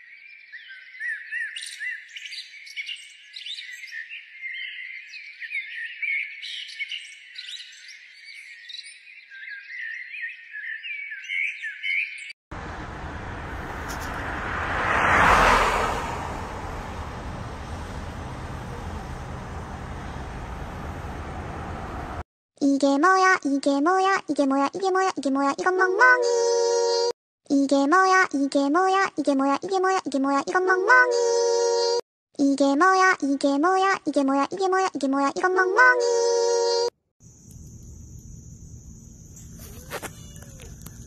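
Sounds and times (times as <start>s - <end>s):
small birds chirping: 0.1s - 14.1s, 16.7s - 22.2s
road traffic noise: 12.5s - 22.3s
vehicle passing: 12.6s - 22.2s.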